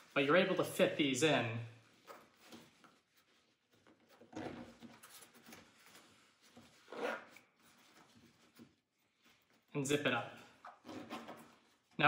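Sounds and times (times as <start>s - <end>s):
rustling of nylon pouch: 1.8s - 9.7s.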